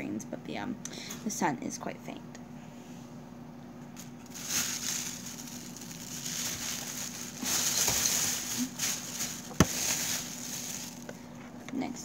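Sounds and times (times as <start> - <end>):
rustling handling noise: 4.0 - 11.6.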